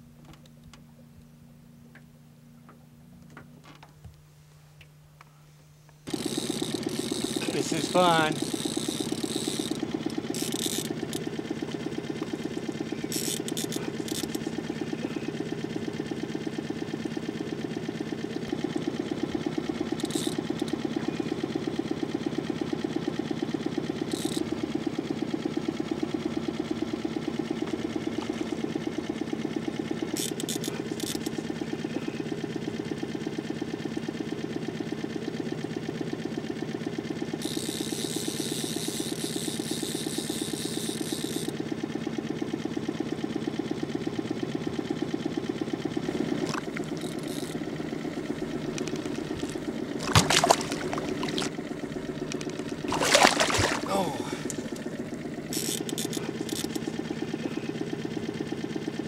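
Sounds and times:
outboard motor running: 4.9s - 59.0s.

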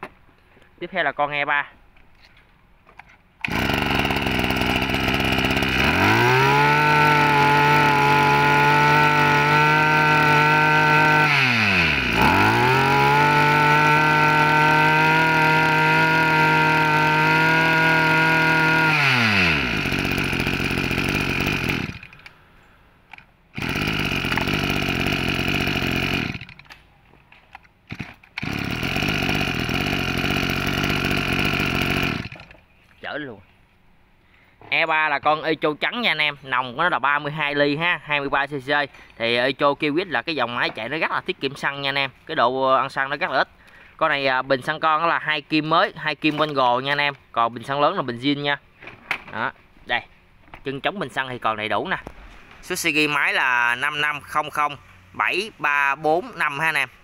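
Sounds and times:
brush cutter engine revving: 3.4s - 22.4s, 23.5s - 26.8s, 27.8s - 32.6s, 52.0s - 57.0s.

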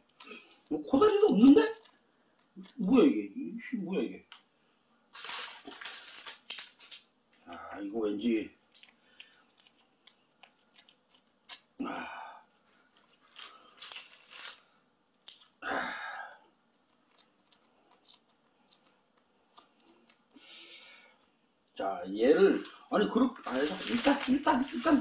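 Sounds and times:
plastic sachet crinkling: 0.0s - 3.1s, 5.1s - 11.8s, 12.8s - 15.6s, 16.8s - 20.4s, 22.6s - 25.0s
plastic sachet rustling: 0.0s - 3.1s, 5.1s - 11.7s, 12.7s - 15.6s, 22.6s - 25.0s.

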